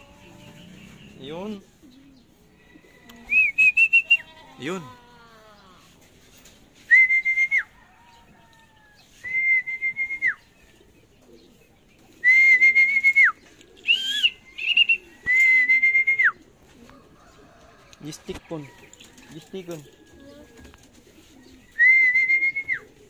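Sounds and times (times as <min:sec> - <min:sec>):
person whistling high notes: 0:06.9 - 0:07.6, 0:09.2 - 0:10.4, 0:12.2 - 0:16.3, 0:21.8 - 0:22.8
short rising whistled chirps: 0:12.2 - 0:16.4.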